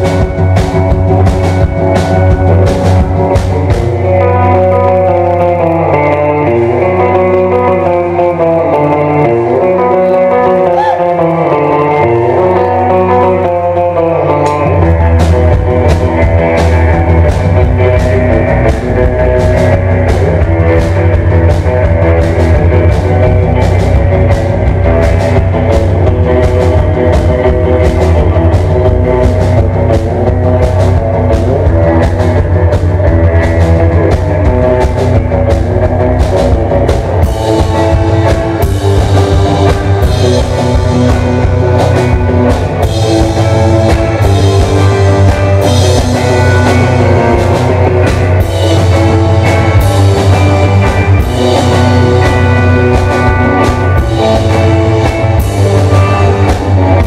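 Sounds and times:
drum kit beat: 0.0s - 57.0s
electric guitar: 0.0s - 57.0s.

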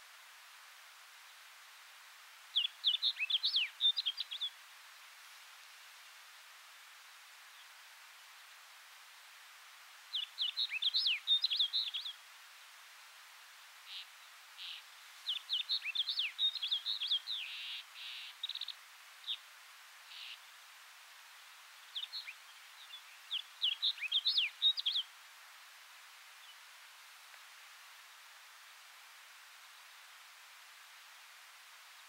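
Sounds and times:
bird warbling song: 2.6s - 4.5s, 10.1s - 12.2s, 13.9s - 19.4s, 21.9s - 25.1s.

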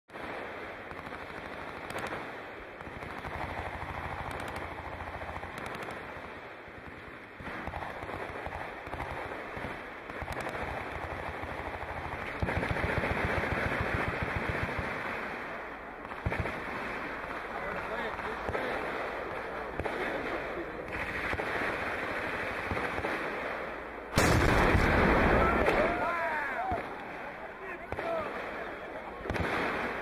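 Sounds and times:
distant machine gun fire: 0.9s - 6.2s, 6.8s - 15.3s, 16.0s - 26.0s.

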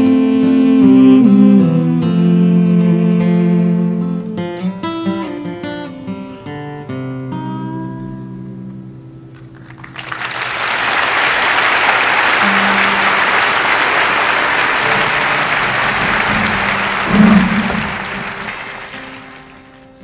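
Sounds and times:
acoustic guitar notes ringing: 0.0s - 9.3s, 12.1s - 20.0s
audience applause: 9.4s - 20.0s
brief loud low sound: 12.4s - 19.4s.

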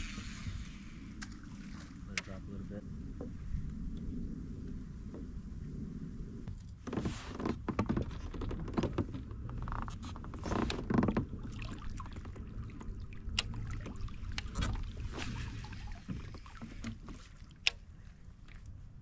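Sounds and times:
steady low rumble: 0.0s - 19.0s
knocks and scrapes: 6.5s - 13.0s, 13.8s - 17.4s.

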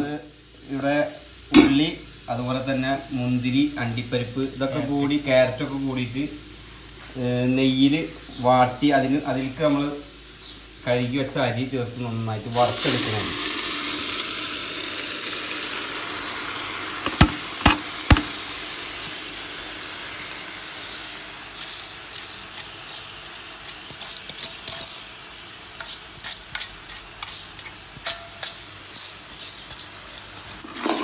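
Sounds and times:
rice sizzling in hot fat: 0.0s - 31.0s
colander scraping against pot: 19.8s - 31.0s.

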